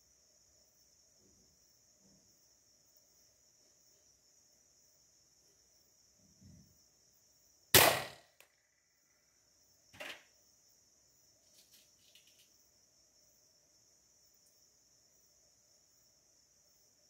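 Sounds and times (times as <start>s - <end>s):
crickets chirping: 0.0s - 17.0s
air rifle shot crack: 7.8s - 8.3s.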